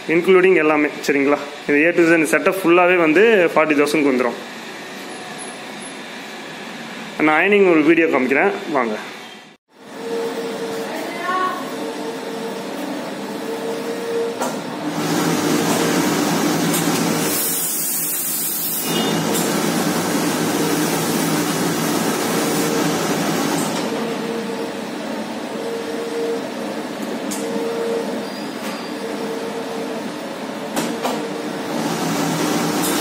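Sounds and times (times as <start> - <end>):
ironing machine humming: 9.8 - 17.8, 18.7 - 25.0, 31.5 - 33.0
steam iron hissing: 17.0 - 19.6.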